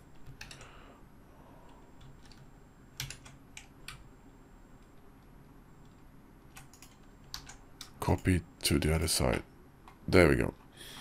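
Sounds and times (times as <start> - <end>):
computer keyboard key presses: 0.2 - 0.7, 2.0 - 4.0, 5.9 - 8.0.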